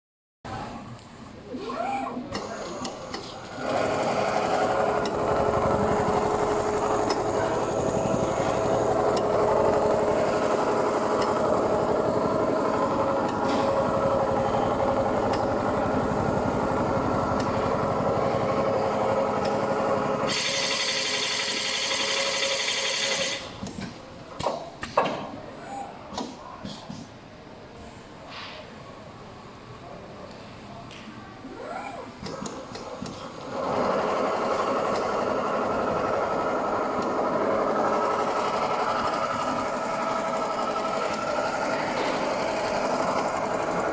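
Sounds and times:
sewing machine stitching: 2.4 - 23.4, 33.4 - 43.9.

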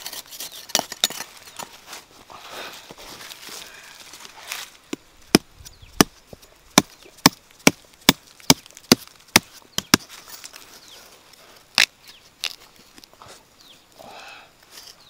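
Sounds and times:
knife stabbing into dry soil: 4.9 - 10.6, 11.7 - 12.6.

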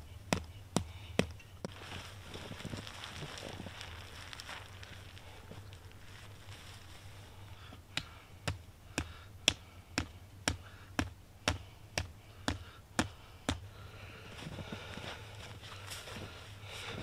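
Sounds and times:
tent stake being hammered: 7.9 - 13.7.

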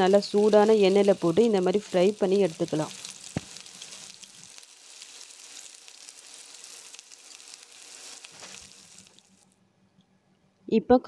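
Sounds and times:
food deep-frying in oil: 0.0 - 9.5.

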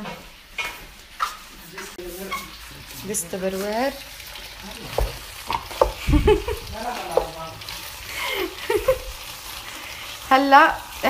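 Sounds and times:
pasta sizzling in a pot: 0.2 - 11.0.

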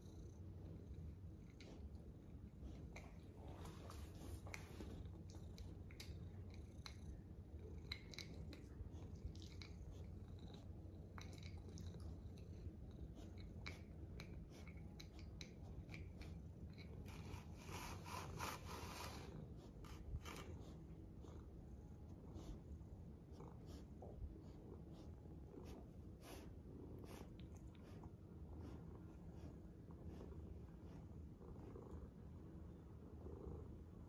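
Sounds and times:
cat purring: 0.0 - 34.0
soft rustle: 1.5 - 5.3.

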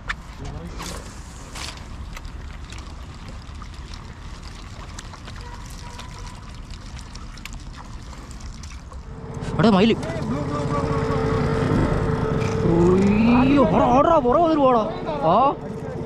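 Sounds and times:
water lapping against wooden boat: 0.8 - 13.2
low rumble: 9.0 - 16.0.

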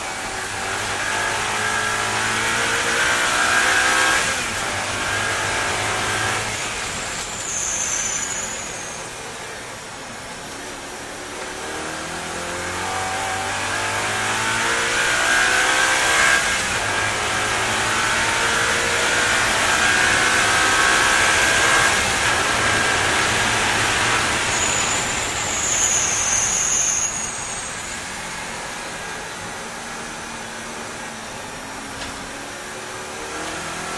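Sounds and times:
thin high-pitched squeal: 7.1 - 9.2, 24.5 - 28.3
race car engine revving: 11.5 - 24.5.

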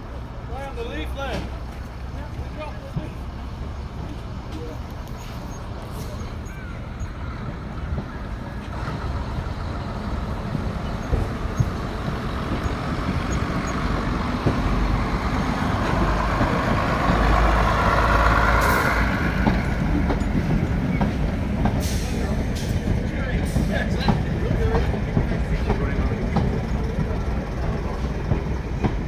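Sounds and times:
diesel train engines: 0.0 - 29.0.

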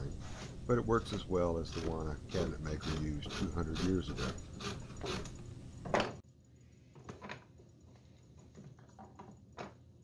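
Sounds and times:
knife cutter scraping wood: 1.7 - 5.4.

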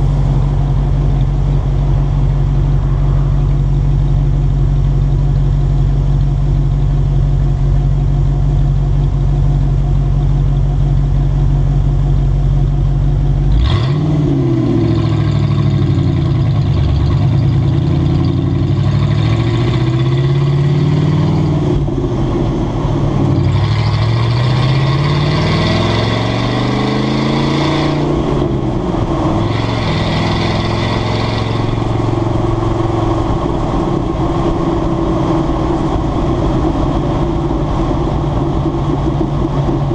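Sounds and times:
pickup truck engine idling: 0.0 - 13.5
truck accelerating through gears: 13.5 - 39.9.

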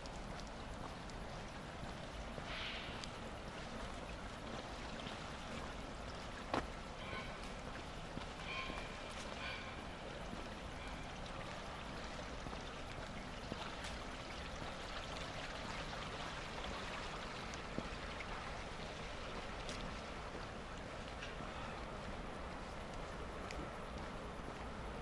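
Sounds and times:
faint ticks: 0.0 - 4.0, 22.7 - 24.6
shallow water flowing: 0.0 - 23.5.

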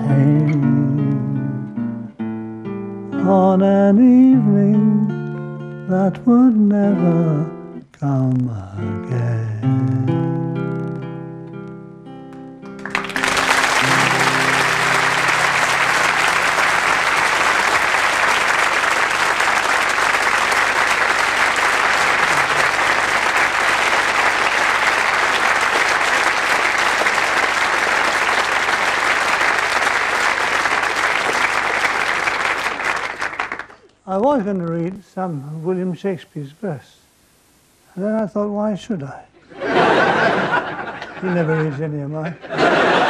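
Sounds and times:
instrumental music: 0.0 - 19.9
audience applause: 12.7 - 33.9.

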